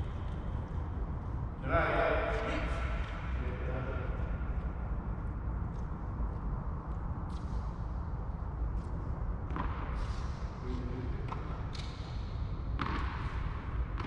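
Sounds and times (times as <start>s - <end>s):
tennis ball bouncing: 12.8s - 14.0s.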